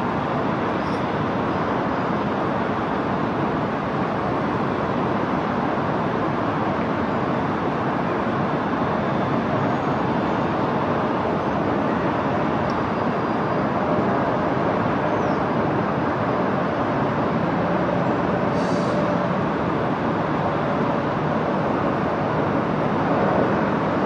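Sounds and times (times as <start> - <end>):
distant city traffic: 0.0 - 24.0.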